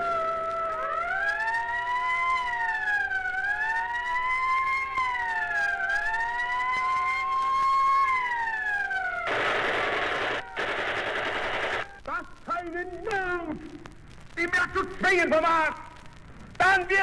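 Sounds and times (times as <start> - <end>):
wailing siren: 0.0 - 12.1
record scratches: 9.2 - 17.0.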